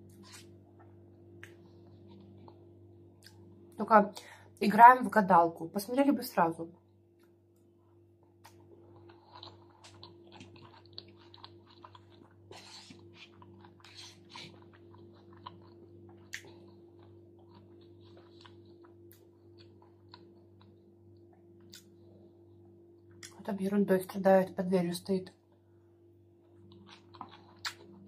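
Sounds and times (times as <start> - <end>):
steady low hum: 0.0 - 28.0
chewing and crunching: 1.4 - 3.4, 8.4 - 21.9, 26.4 - 28.0.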